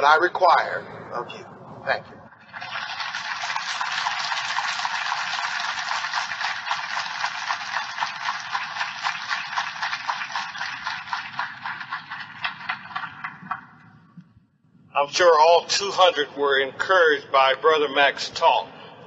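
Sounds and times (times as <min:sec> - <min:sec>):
audience applauding: 0:02.4 - 0:13.8.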